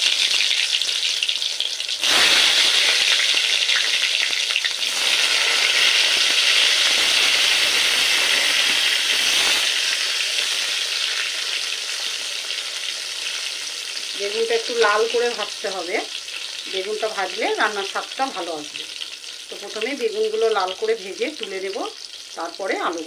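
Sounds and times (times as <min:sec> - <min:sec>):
eggplant sizzling in hot oil: 0:00.0 - 0:23.0.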